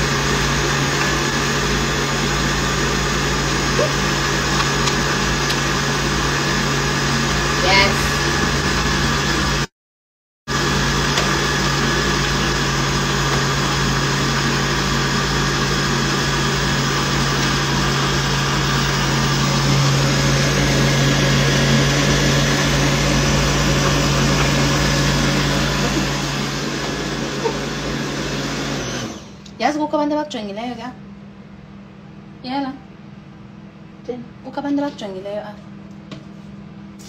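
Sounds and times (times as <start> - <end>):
blender motor whirring: 0.0 - 9.7, 10.5 - 29.6.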